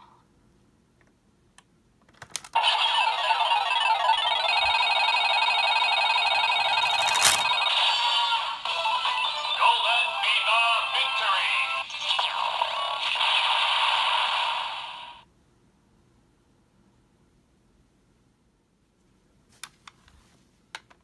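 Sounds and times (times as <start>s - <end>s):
electronic slot-machine jingle: 2.6s - 8.3s.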